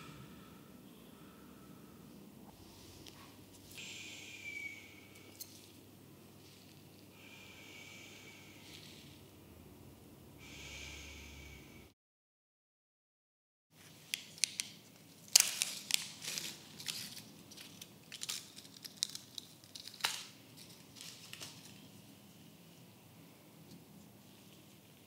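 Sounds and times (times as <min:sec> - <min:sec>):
plastic packet crinkling and tearing: 0:14.3 - 0:21.9.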